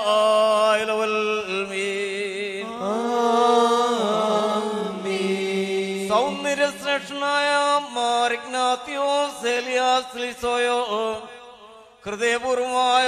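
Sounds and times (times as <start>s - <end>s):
voices chanting slow melody: 2.6s - 6.8s.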